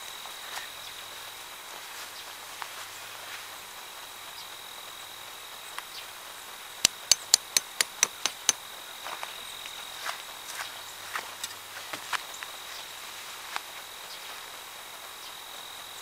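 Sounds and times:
high insect drone: 0.0 - 16.0
hammer striking tent stake: 6.8 - 8.6.

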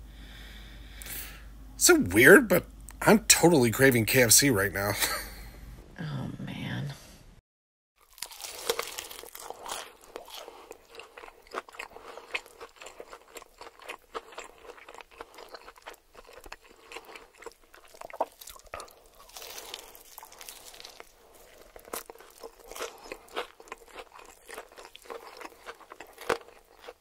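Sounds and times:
person chewing crispy food: 8.0 - 27.0.

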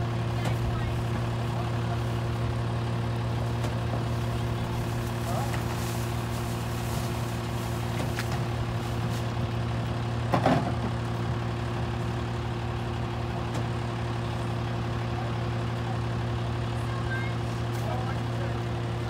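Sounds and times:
garbage truck engine idling: 0.0 - 19.0.

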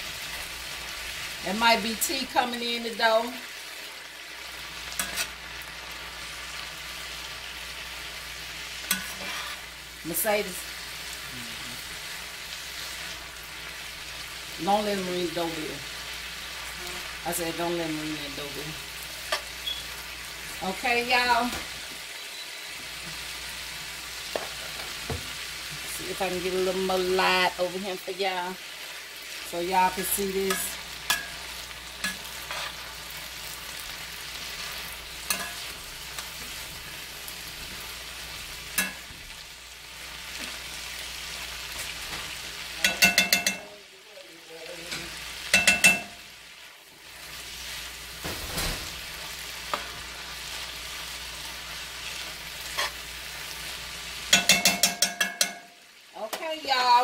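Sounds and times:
cabbage sizzling in a skillet: 0.0 - 57.0
metal spatula scraping a pan: 4.8 - 5.5, 8.8 - 9.8, 29.9 - 37.0, 52.0 - 53.1.

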